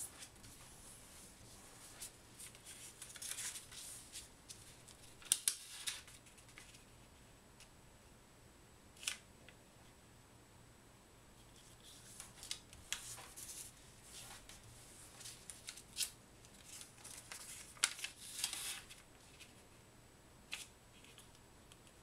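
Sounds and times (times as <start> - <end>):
paper rustling and crackling: 1.6 - 6.9, 11.6 - 19.6.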